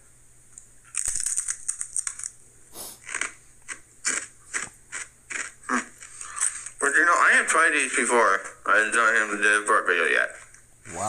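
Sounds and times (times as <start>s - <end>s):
chip crunching: 0.8s - 6.8s.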